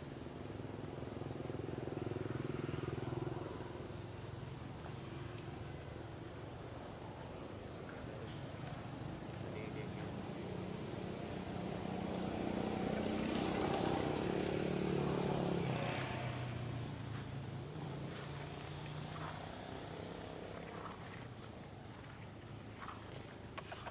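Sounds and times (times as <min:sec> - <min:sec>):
vehicle engine passing: 0:09.4 - 0:21.2.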